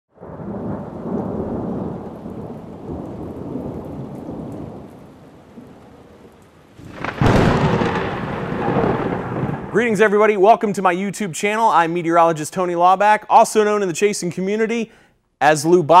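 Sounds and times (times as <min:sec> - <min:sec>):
loud thunderclap: 0:00.2 - 0:06.0, 0:06.8 - 0:10.4
rain: 0:00.2 - 0:10.1
thunder rumbling: 0:00.2 - 0:12.4.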